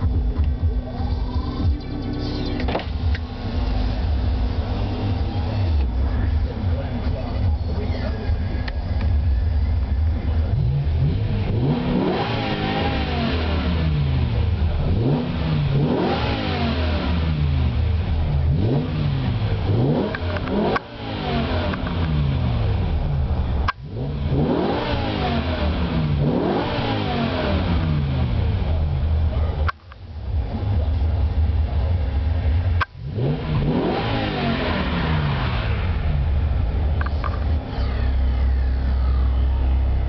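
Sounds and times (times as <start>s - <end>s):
car engine revving: 0.0s - 40.0s.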